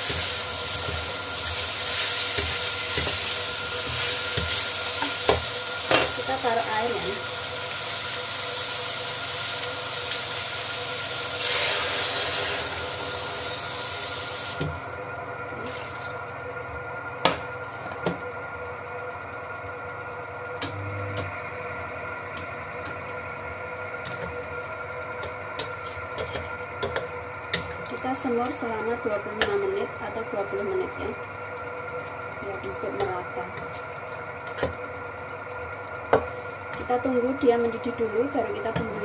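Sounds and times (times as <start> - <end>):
meat sizzling in a wok: 0.0 - 14.8.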